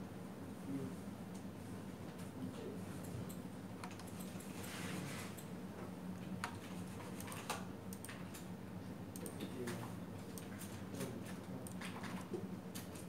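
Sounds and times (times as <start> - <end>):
computer keyboard and mouse clicks: 3.0 - 4.7, 6.3 - 8.5, 9.1 - 10.8.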